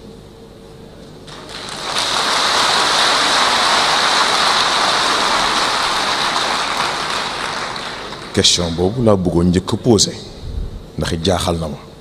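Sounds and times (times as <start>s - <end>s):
audience applause: 1.3s - 9.0s.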